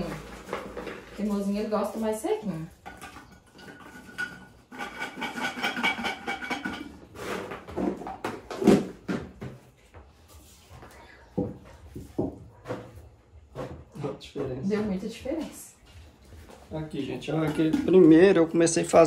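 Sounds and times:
storage pots and lids clattering: 0:00.0 - 0:09.4, 0:17.2 - 0:19.0.

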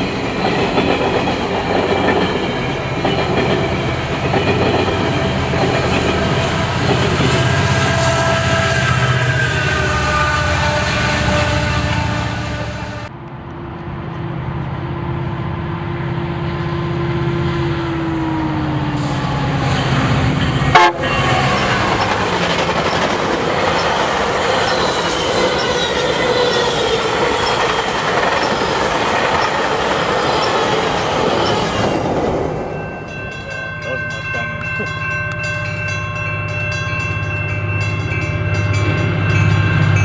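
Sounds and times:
train wheels clattering on rails: 0:00.0 - 0:08.7, 0:20.2 - 0:32.8.

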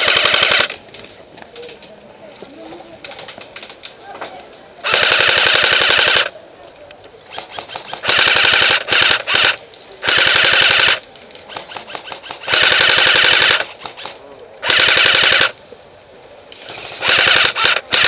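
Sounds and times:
airsoft rifle full-auto bursts: 0:00.0 - 0:00.8, 0:04.8 - 0:06.3, 0:07.3 - 0:15.6, 0:16.6 - 0:18.0.

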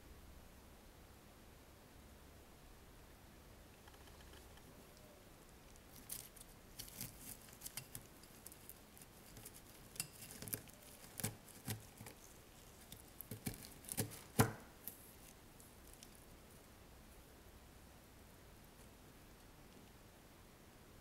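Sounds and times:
potting mix crackling: 0:03.7 - 0:17.2.

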